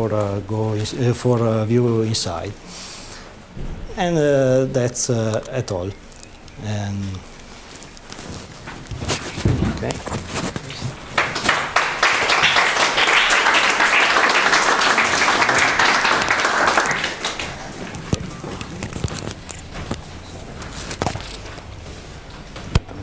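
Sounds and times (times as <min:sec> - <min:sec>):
small knocks: 0:08.7 - 0:10.6
audience applauding: 0:10.7 - 0:18.2.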